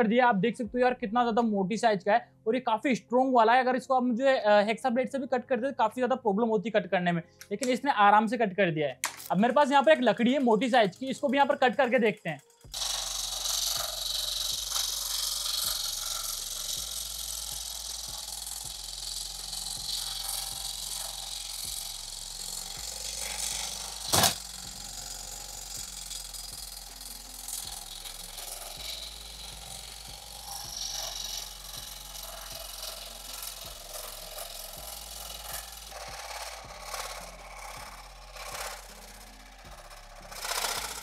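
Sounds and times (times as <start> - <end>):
saw blade cutting wood: 9.0 - 41.0.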